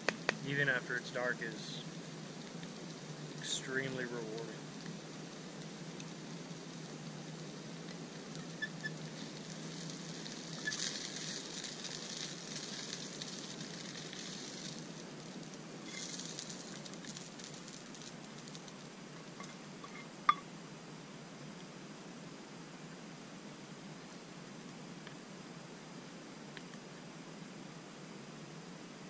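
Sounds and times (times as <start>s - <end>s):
camp stove hissing: 0.0s - 20.4s
food sizzling in pan: 0.0s - 20.4s.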